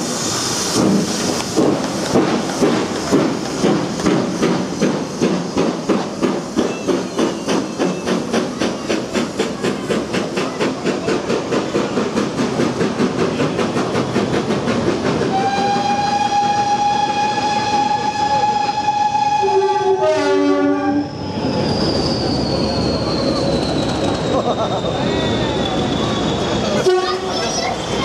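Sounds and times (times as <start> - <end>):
steam locomotive exhaust beats: 0.0 - 28.0
train whistle: 15.3 - 21.2, 26.8 - 27.3.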